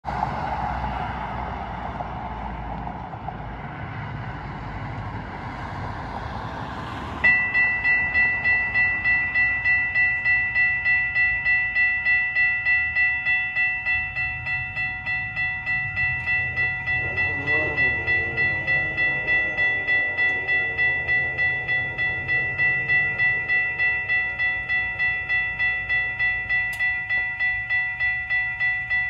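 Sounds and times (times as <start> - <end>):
road traffic: 0.0 - 29.0
railroad crossing bell ringing: 7.2 - 29.0.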